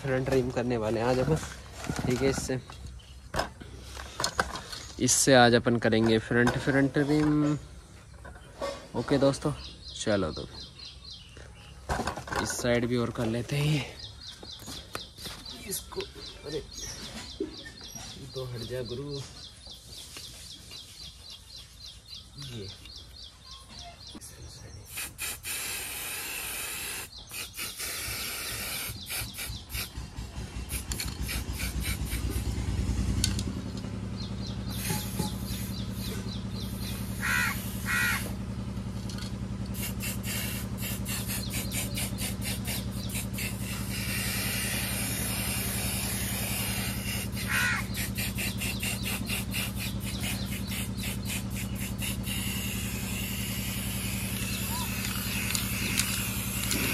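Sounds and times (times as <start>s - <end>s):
engine running: 0.0s - 23.3s, 24.9s - 56.9s
bird calling: 1.1s - 56.9s
spray-paint can hissing: 24.9s - 30.0s, 30.6s - 32.6s, 34.7s - 37.9s, 39.7s - 56.9s.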